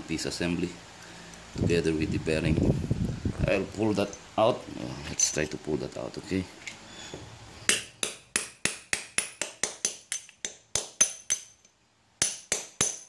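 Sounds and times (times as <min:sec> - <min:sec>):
hammer tapping on steel: 0:07.7 - 0:13.0.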